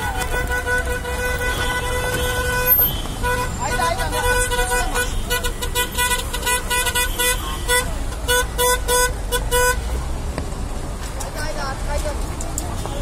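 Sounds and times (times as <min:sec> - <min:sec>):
car horn beeping: 0:00.0 - 0:09.9
idling traffic rumble: 0:00.0 - 0:13.0.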